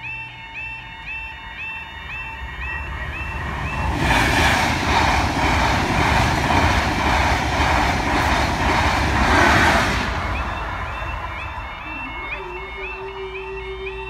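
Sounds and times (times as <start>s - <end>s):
crossing alarm rising tones: 0.0s - 14.0s
train wheels on rails: 0.6s - 14.0s.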